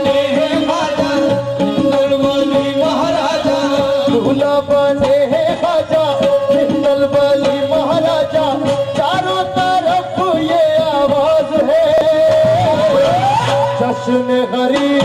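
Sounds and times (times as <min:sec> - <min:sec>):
hand drum beats: 0:00.0 - 0:15.0
harmonium melody: 0:00.0 - 0:15.0
man singing: 0:00.0 - 0:15.0.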